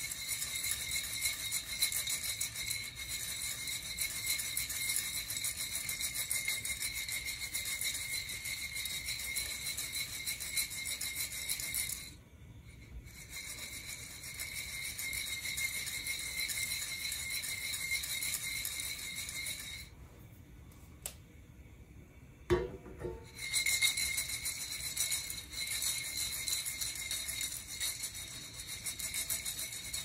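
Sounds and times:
coffee beans rattling in roaster: 0.0 - 12.2, 23.2 - 30.0.

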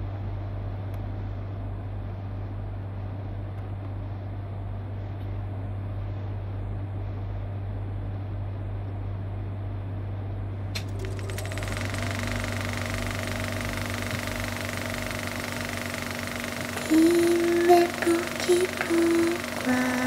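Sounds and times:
steady low drone: 0.0 - 20.0
steady higher tones: 10.8 - 20.0.

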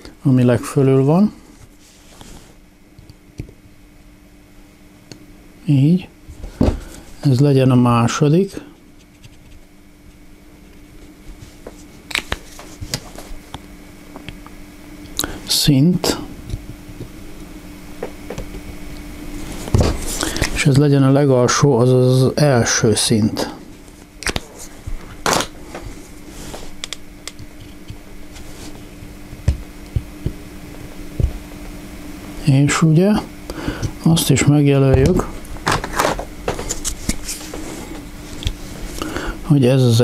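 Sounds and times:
faint steady hum: 0.0 - 40.0
parts clattering: 35.0 - 38.5.

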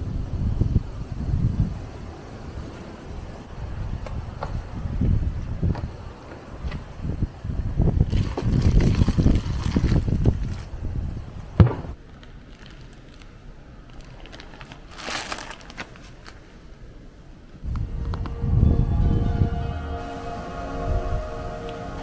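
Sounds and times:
plastic food bags crinkling: 8.1 - 10.7, 12.0 - 16.4
low rumbling: 17.6 - 22.0.

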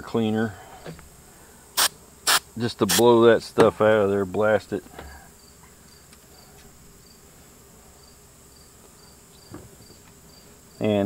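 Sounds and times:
insect high buzz: 0.5 - 3.4, 4.5 - 11.0
short high insect chirps: 1.8 - 3.0.

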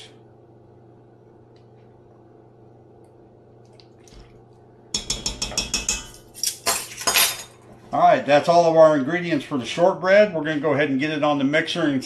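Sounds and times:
faint room hum: 0.0 - 12.0
spoon tapping metal bowl: 5.0 - 6.8.

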